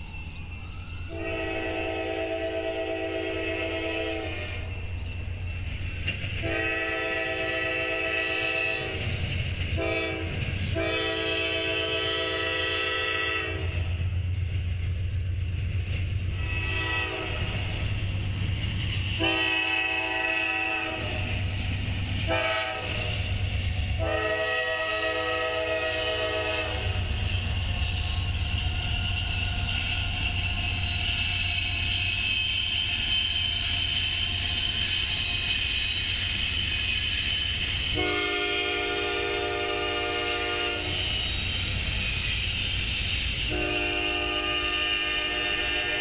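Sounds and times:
freight train rumbling past: 0.0s - 46.0s
train wheel noise: 0.0s - 46.0s
locomotive air horn blasts: 1.1s - 4.6s, 6.4s - 9.0s, 9.8s - 13.8s, 16.4s - 17.6s, 19.2s - 21.3s, 22.3s - 23.1s, 24.0s - 27.1s, 37.9s - 41.0s, 43.5s - 46.0s.

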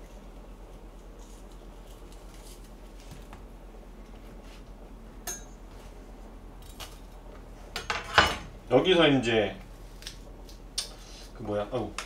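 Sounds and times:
steady low hum: 0.0s - 12.0s
kitchenware clinking: 5.2s - 5.6s, 7.8s - 8.5s.

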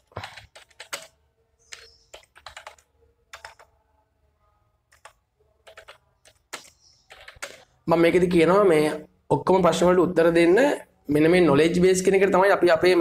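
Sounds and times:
computer keyboard typing: 0.0s - 3.8s, 4.9s - 7.8s.

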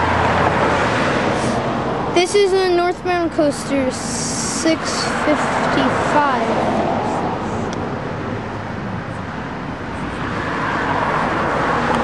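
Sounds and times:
car passing: 0.0s - 12.0s
road traffic hum: 0.0s - 12.0s.

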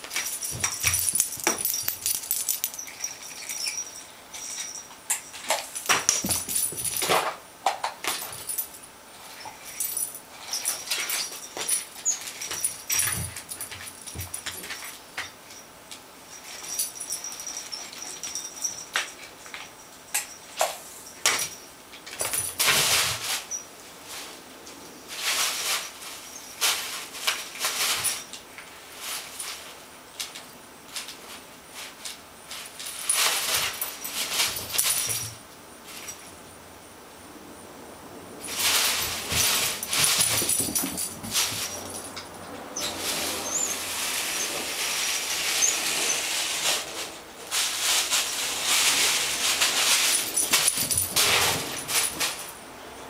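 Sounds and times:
jingle bell jingling: 0.0s - 7.2s, 16.3s - 22.7s, 38.4s - 43.8s, 49.2s - 52.6s
cardboard toy rustling on carpet: 42.9s - 50.4s.

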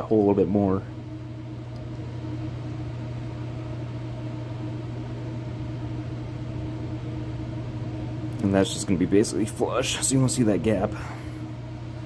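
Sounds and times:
machine humming: 0.0s - 12.0s.

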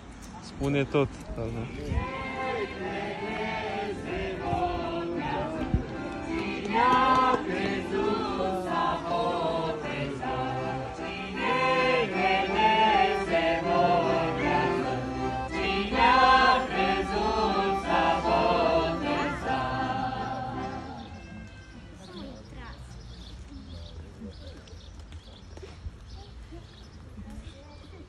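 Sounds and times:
choir singing a hymn: 1.6s - 21.4s.

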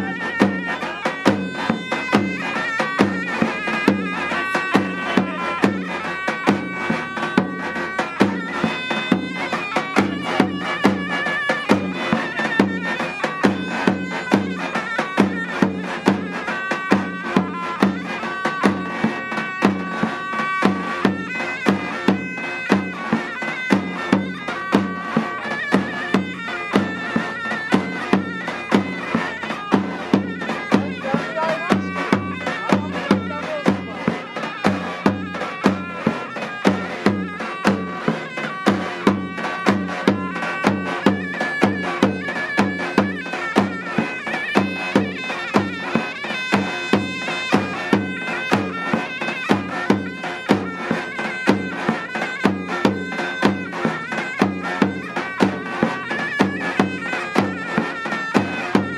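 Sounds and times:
shrill reed wind instrument: 0.0s - 58.9s.

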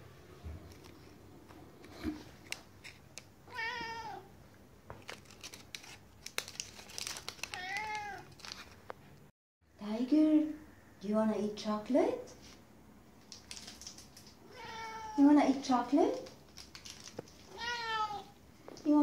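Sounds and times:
cat meowing: 3.5s - 4.3s, 7.5s - 8.3s, 14.4s - 15.2s, 17.5s - 18.4s.

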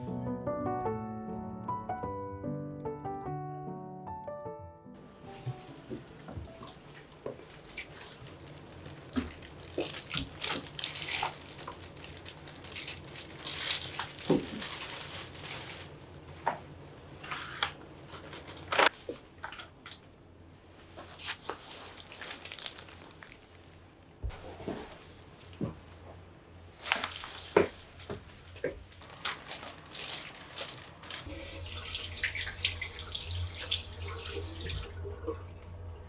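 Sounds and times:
shopping bags rustling: 6.7s - 16.3s, 17.2s - 19.2s, 21.1s - 25.2s, 26.7s - 31.3s.

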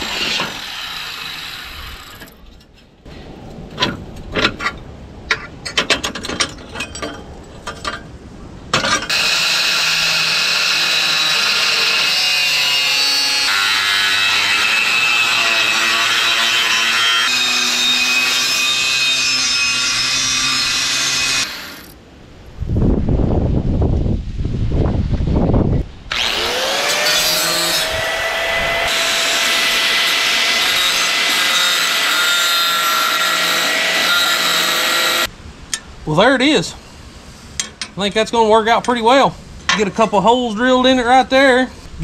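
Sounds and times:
angle grinder cutting steel: 0.0s - 2.3s, 9.1s - 22.0s, 26.1s - 35.3s.

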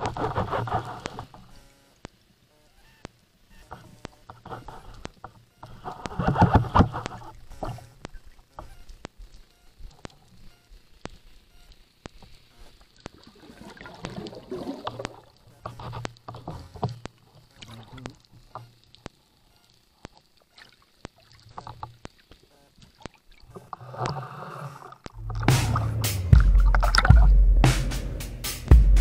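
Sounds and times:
sharp underwater clicks: 0.0s - 27.8s
bubbly underwater movement: 12.9s - 16.6s, 22.9s - 27.4s.

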